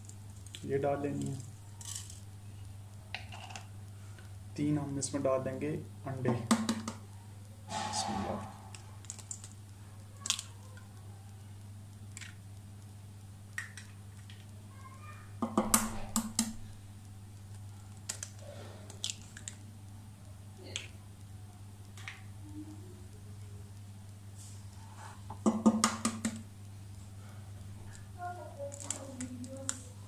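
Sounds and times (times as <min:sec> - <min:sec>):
eggshells cracking: 0:00.0 - 0:04.3, 0:08.7 - 0:14.7, 0:15.4 - 0:21.1, 0:27.9 - 0:30.0
steady low hum: 0:07.0 - 0:14.7.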